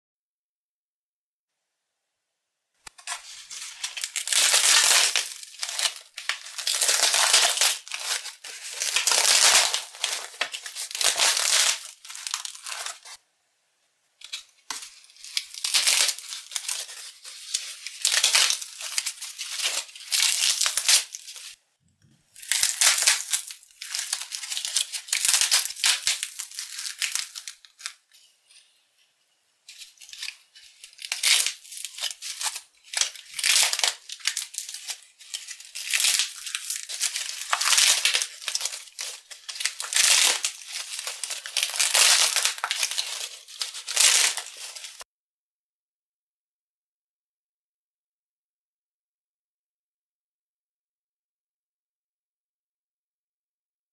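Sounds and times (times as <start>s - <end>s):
cardboard crunching and crackling: 2.9s - 13.2s, 14.7s - 21.6s, 22.4s - 28.0s, 29.7s - 45.0s.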